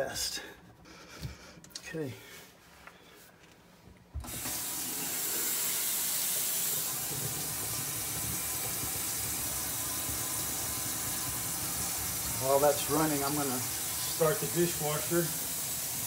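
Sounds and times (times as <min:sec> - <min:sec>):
faucet water pouring into sink: 0:04.3 - 0:16.0.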